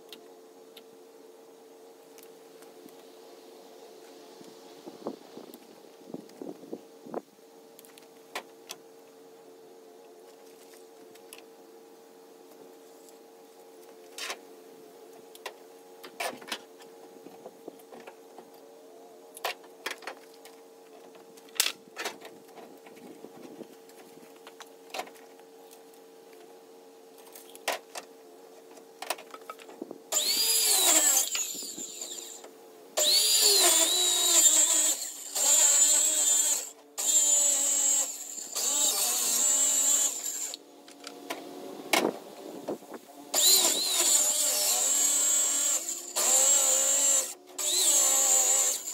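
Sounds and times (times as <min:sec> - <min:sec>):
circular saw cutting wood: 0:30.1 - 0:40.6, 0:43.3 - 0:48.9.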